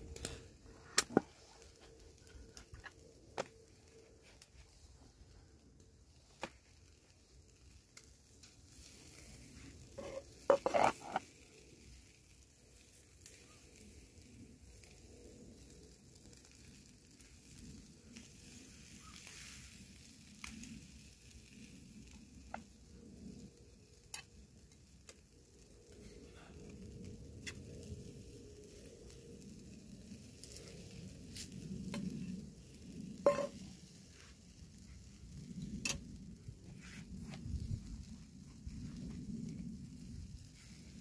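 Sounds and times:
food sizzling in a pan: 8.7s - 12.0s, 30.3s - 34.3s.

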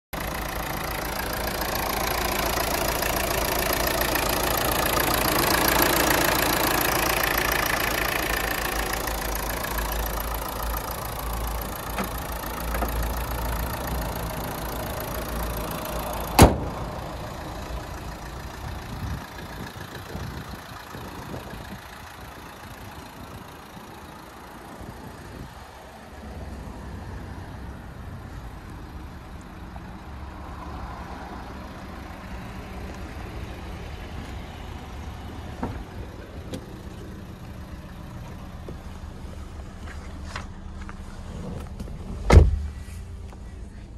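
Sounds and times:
diesel engine idling: 0.1s - 43.9s
sharp bang: 16.4s - 16.9s.

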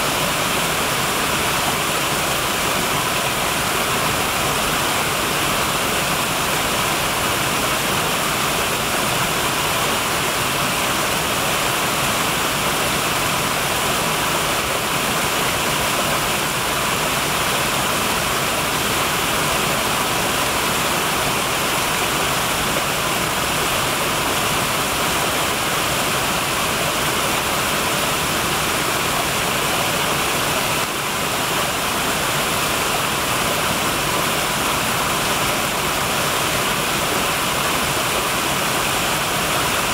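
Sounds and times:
waterfall rushing and splashing: 0.0s - 39.9s.

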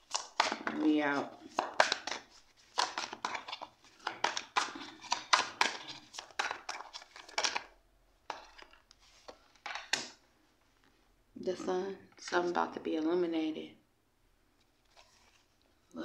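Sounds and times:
cards riffling and slapping: 0.0s - 10.2s.

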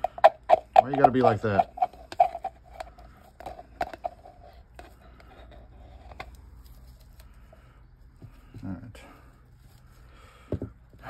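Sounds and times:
plastic cup and stick clicks: 0.0s - 4.2s
faint steady hum: 0.0s - 11.0s.

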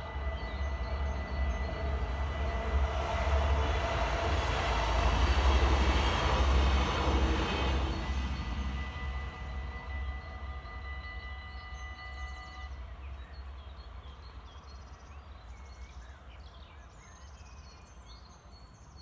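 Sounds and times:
birds chirping: 0.0s - 4.0s, 7.5s - 19.0s
level-crossing warning bells: 0.0s - 12.9s.

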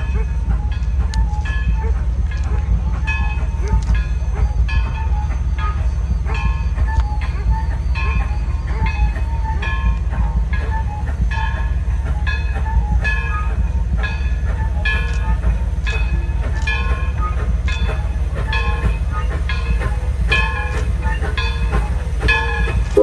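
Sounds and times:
deep steady train rumble: 0.0s - 23.0s
locomotive bell ringing: 0.0s - 23.0s.

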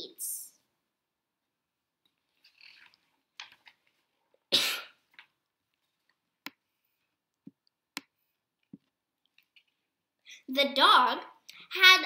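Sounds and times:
person coughing: 4.5s - 5.0s.

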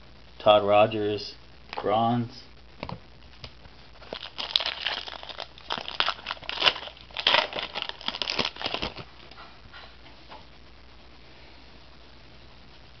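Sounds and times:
plastic wrapper crinkling: 2.8s - 9.4s.

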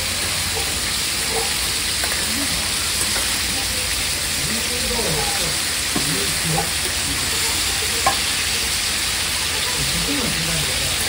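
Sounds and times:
food sizzling on a griddle: 0.0s - 11.0s.

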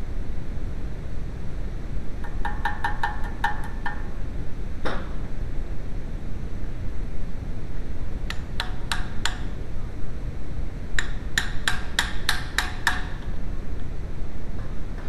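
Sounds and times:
hammer tapping metal tube: 2.2s - 4.1s, 8.3s - 9.6s, 11.0s - 13.3s.

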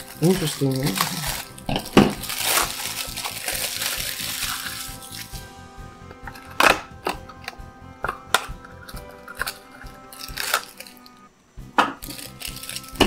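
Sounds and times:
plastic packet crinkling: 0.0s - 5.4s, 8.9s - 11.1s, 12.0s - 13.0s
quiet background music: 0.0s - 13.0s.

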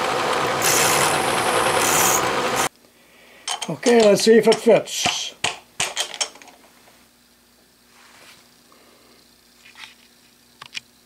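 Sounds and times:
faint steady hum: 2.6s - 11.0s
metal parts clinking: 3.5s - 4.7s, 5.8s - 6.6s.

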